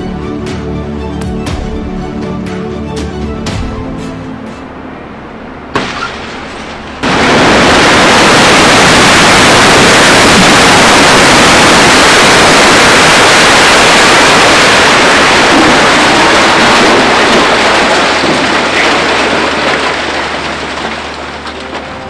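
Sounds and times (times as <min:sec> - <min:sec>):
sharp crack: 0:05.7 - 0:22.0
roar of crashing concrete: 0:05.8 - 0:22.0.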